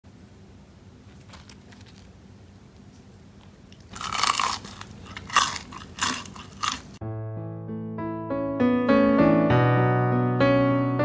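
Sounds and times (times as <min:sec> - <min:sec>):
crunching fried crust: 0:01.0 - 0:07.0.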